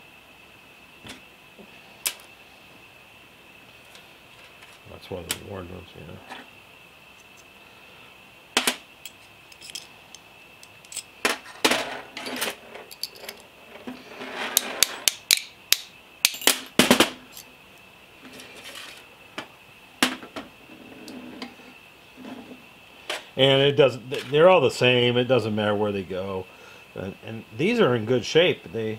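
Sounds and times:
small steel parts clinking on metal: 9.0s - 13.5s, 14.6s - 16.7s, 17.3s - 17.5s.

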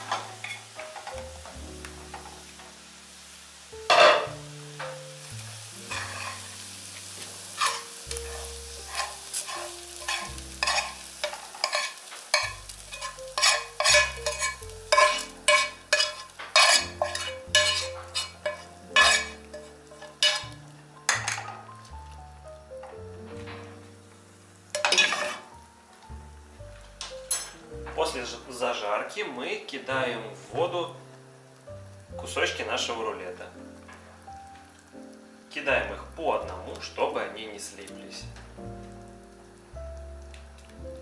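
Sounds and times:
metal spoon scraping frying pan: 3.9s - 4.3s, 5.8s - 6.6s, 7.4s - 21.7s, 24.7s - 25.5s
sharp metal clank: 3.9s - 4.3s.

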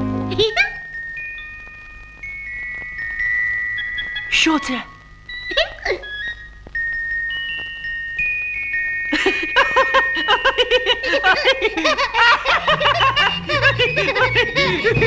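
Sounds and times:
light music with bass: 0.0s - 0.5s, 12.5s - 15.0s
cartoon voice giggling: 10.6s - 15.0s.

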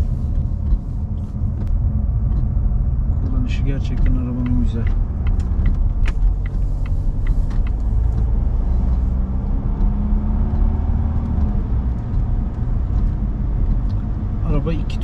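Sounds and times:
car engine and road noise: 0.0s - 15.0s
light ticks: 1.6s - 9.1s.

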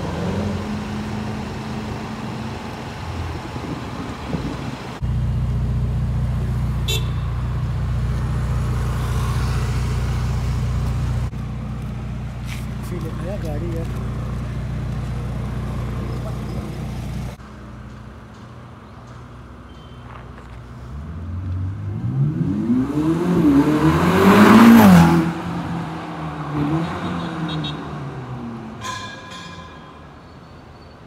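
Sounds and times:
low engine hum: 0.0s - 19.4s
sports car accelerating past: 21.0s - 28.7s.

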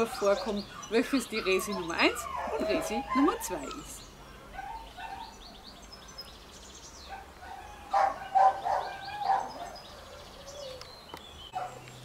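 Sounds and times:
puppy squeaking and whimpering: 0.0s - 4.0s
small birds chirping: 0.0s - 12.0s.

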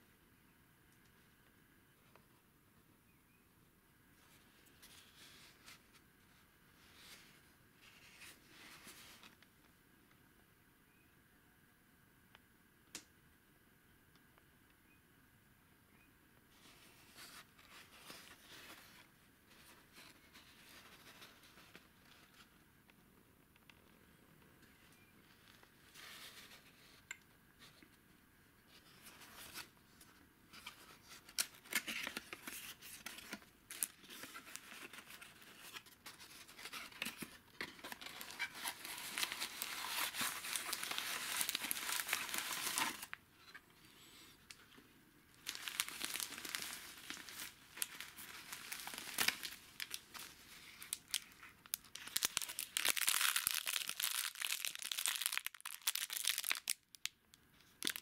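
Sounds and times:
cardboard box crinkling: 30.6s - 43.2s, 45.4s - 51.3s, 51.9s - 56.8s
brittle plastic wrapping crackling: 37.8s - 43.2s, 45.3s - 57.2s, 57.8s - 58.0s.

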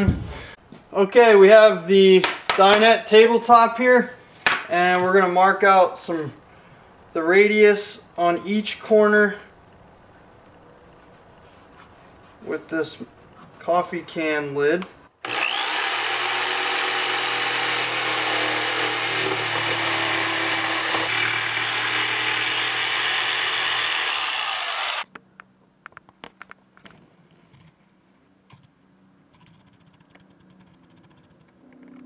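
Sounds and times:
jigsaw cutting wood: 15.2s - 25.0s.

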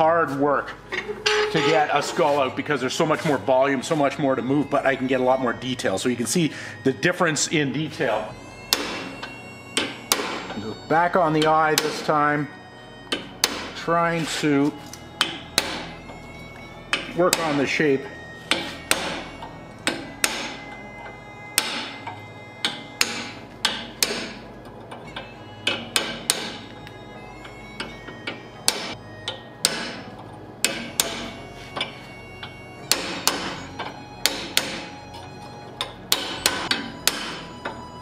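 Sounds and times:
hammer striking metal punch: 8.7s - 9.2s, 9.8s - 10.6s, 11.4s - 12.1s, 13.1s - 13.8s, 15.2s - 16.0s, 16.9s - 17.8s, 18.5s - 20.6s, 21.5s - 24.4s, 25.6s - 26.7s, 28.7s - 31.9s, 32.9s - 34.9s, 35.8s - 37.8s.

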